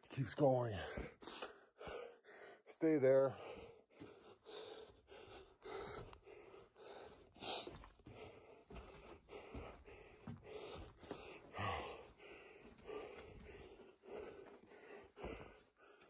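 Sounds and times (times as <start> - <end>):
person panting: 0.7 - 2.7, 3.3 - 16.0
footsteps on sand: 7.4 - 13.9.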